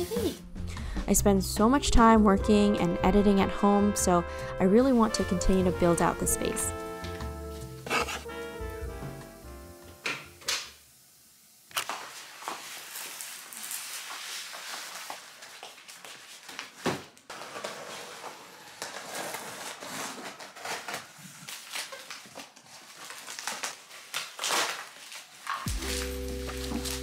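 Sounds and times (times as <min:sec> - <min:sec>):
cardboard rustling and scraping: 0:07.5 - 0:08.3, 0:11.9 - 0:27.0
plastic wrap crinkling: 0:11.7 - 0:27.0.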